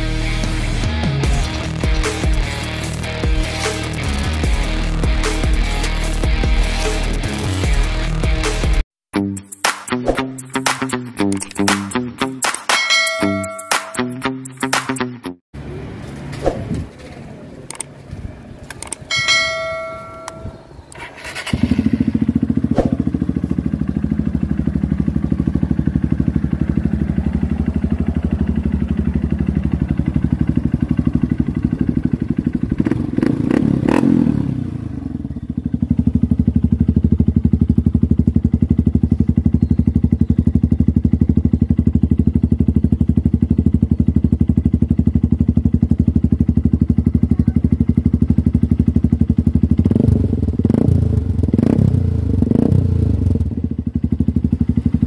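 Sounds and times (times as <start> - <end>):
motorcycle engine idling: 19.1 - 55.0.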